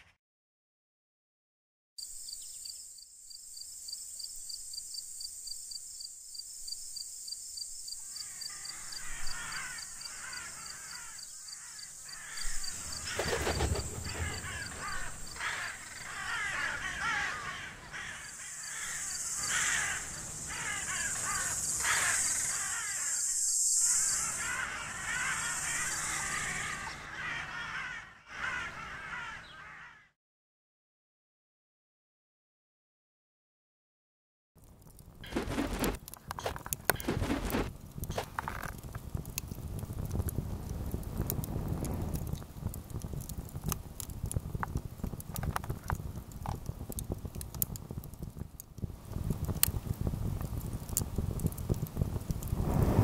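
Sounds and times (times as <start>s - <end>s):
crows cawing: 8.0s - 30.2s, 35.2s - 38.7s
high insect-like trill: 18.2s - 26.6s.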